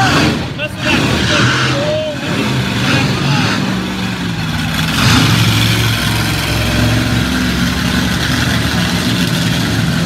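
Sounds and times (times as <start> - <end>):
truck engine revving: 0.0 - 10.0.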